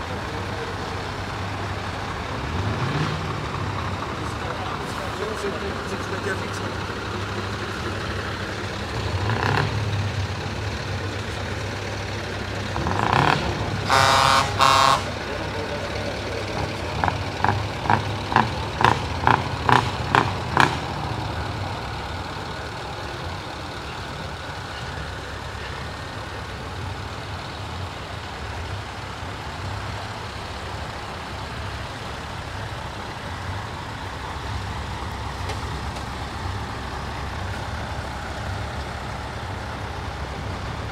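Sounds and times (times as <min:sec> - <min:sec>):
truck diesel engines running: 0:00.0 - 0:40.9
truck horn blaring: 0:12.9 - 0:15.4.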